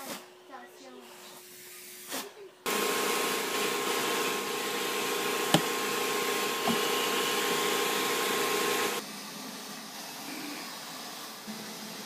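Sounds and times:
vacuum cleaner running: 2.6 - 12.0.

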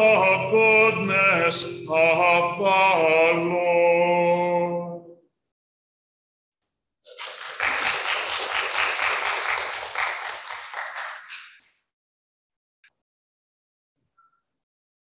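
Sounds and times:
congregation applauding: 7.1 - 11.6.

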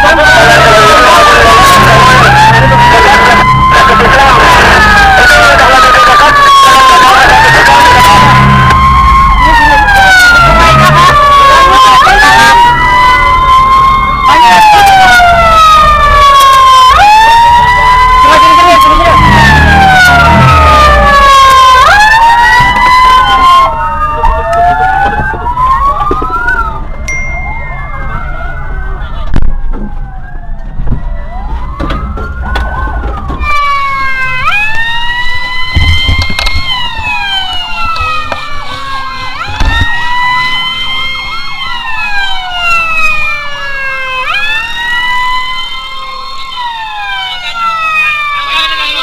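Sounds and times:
sirens wailing: 0.0 - 49.0
low thump: 35.7 - 36.8.

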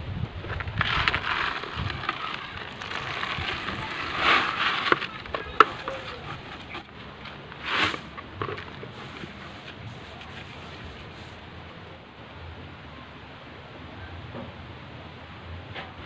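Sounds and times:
grains pouring into a pot: 0.8 - 6.8, 7.6 - 10.8.

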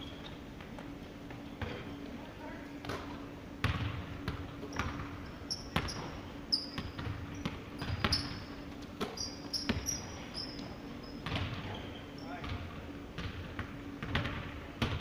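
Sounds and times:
sneakers squeaking on court: 0.0 - 2.2, 2.8 - 15.0
basketball bouncing on wood floor: 3.6 - 10.1, 11.2 - 11.8, 12.4 - 15.0.

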